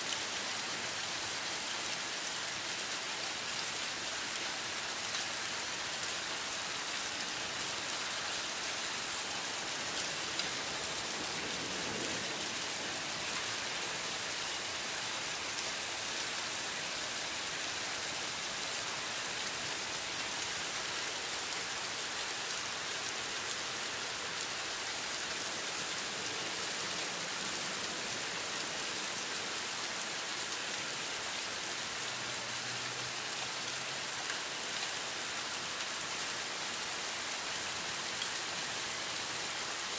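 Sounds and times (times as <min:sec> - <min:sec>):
heavy rain hissing: 0:06.4 - 0:32.0.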